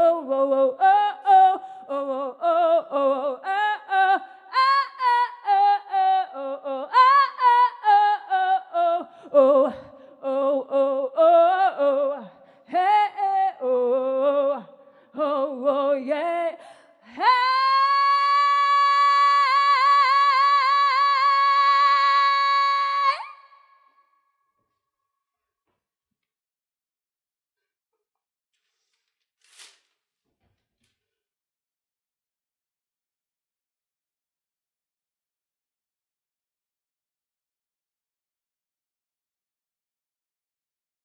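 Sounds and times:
woman singing unaccompanied: 0.0s - 23.7s.

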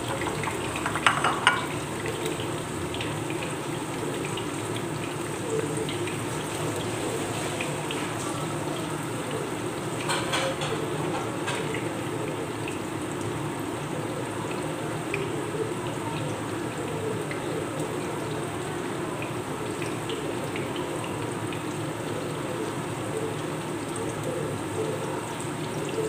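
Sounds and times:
oil crackle: 0.0s - 10.9s
food sizzling in hot oil: 0.0s - 13.8s.

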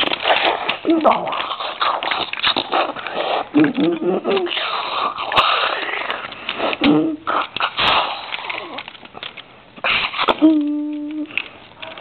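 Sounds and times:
child making mouth sound effects: 3.5s - 5.0s, 6.7s - 7.5s, 10.2s - 12.0s.

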